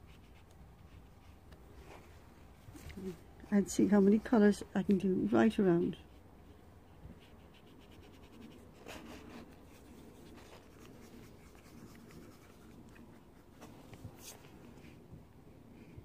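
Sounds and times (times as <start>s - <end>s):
painting tool scratching paper: 7.2s - 14.4s.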